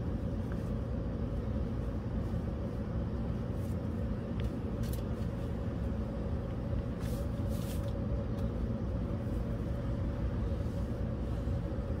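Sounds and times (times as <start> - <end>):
machinery humming: 0.0 - 12.0
soft brushing: 6.9 - 8.0.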